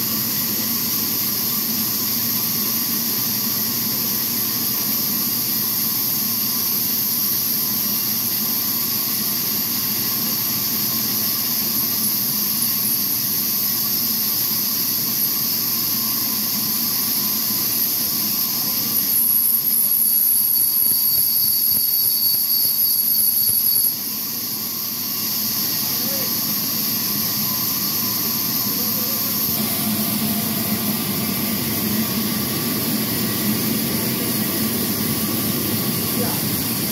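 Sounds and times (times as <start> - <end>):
high saw whine: 0.0 - 36.9.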